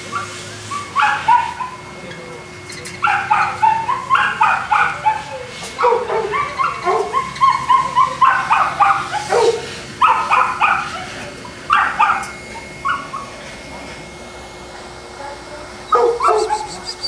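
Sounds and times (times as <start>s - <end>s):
dog yipping with high barks: 1.0s - 1.8s, 3.0s - 11.0s, 15.9s - 17.0s.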